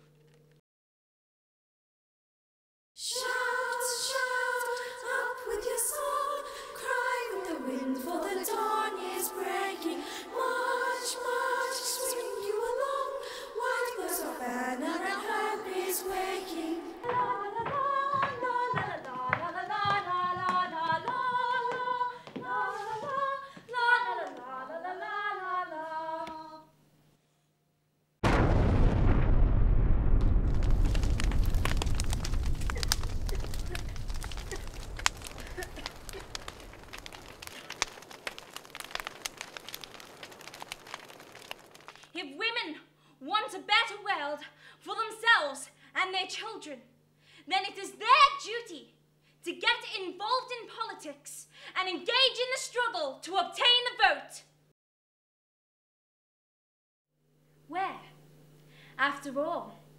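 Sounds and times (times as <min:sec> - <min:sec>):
women singing in a group: 0:03.0 - 0:26.6
low rumble: 0:28.2 - 0:37.8
fire crackling and popping: 0:28.2 - 0:42.2.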